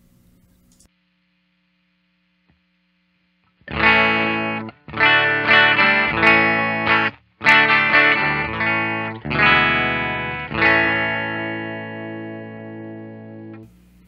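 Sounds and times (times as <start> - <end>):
electric guitar chords: 3.4 - 13.8.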